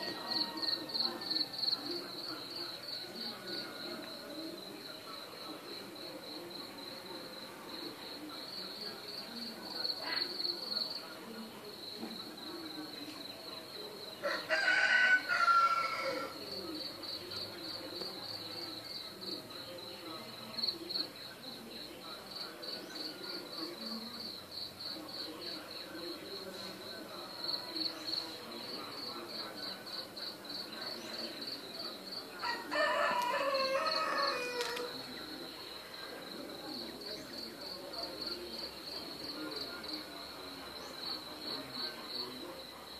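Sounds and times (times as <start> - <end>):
rooster crowing: 0.0 - 1.0, 14.2 - 16.4, 32.4 - 35.0.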